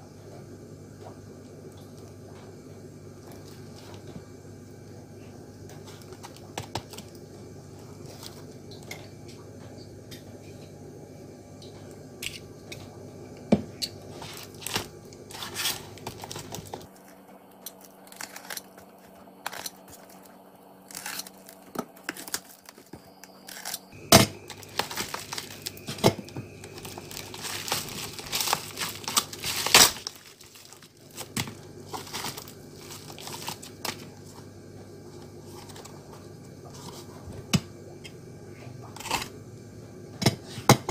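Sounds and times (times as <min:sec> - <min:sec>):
plastic mailer crinkling and tearing: 0:14.1 - 0:20.3, 0:20.9 - 0:34.4, 0:35.4 - 0:36.0.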